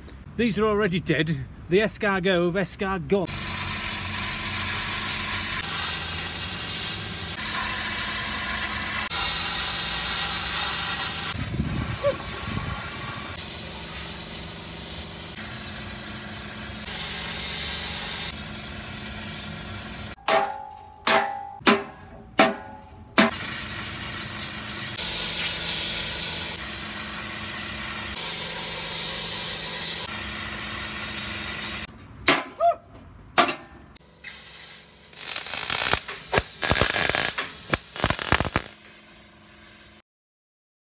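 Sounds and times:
plasma cutter hissing: 3.3s - 20.2s, 23.3s - 31.9s, 34.1s - 40.0s
hammer striking metal keg: 20.2s - 23.4s.

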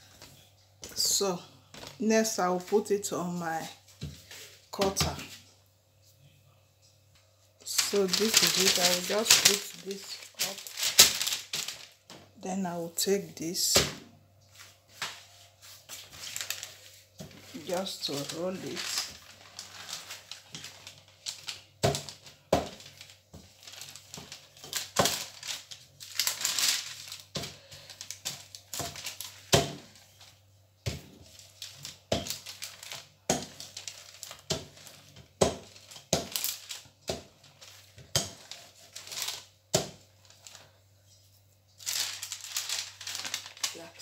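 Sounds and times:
paper crinkling: 7.6s - 12.1s, 14.4s - 44.0s.

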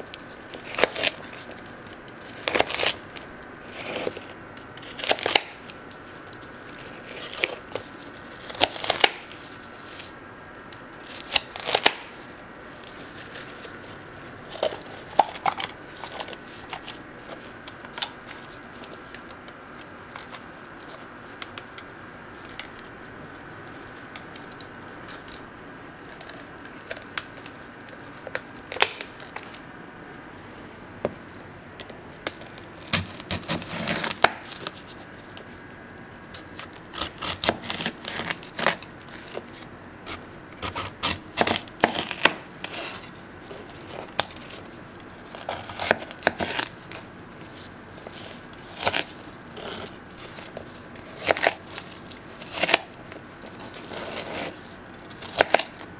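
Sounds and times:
faint high hum: 0.0s - 55.9s
knife crunching through hard candy: 0.2s - 5.8s, 6.7s - 10.2s, 11.0s - 21.6s, 32.3s - 34.9s, 36.3s - 55.9s.

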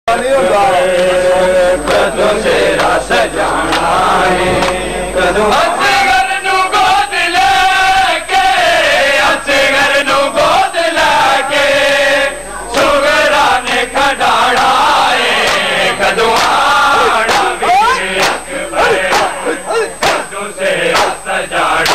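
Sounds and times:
men chanting a lament: 0.1s - 21.9s
hands slapping chests: 4.6s - 4.8s, 15.4s - 15.7s, 16.3s - 16.6s, 17.3s - 18.5s, 19.1s - 19.4s, 20.0s - 20.3s, 20.9s - 21.2s.

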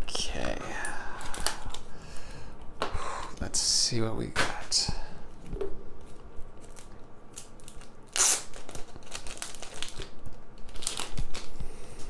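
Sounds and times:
packaging ripping: 1.2s - 1.9s, 6.6s - 11.6s
card packaging rustling: 6.0s - 12.0s.

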